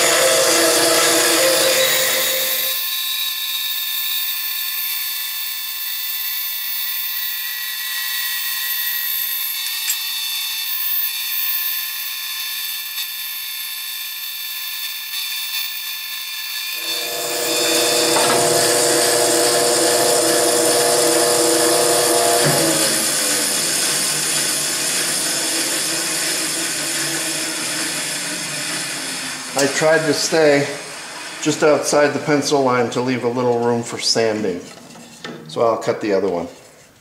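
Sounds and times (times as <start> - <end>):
bandsaw cutting wood: 0.0 - 3.0, 16.6 - 34.6.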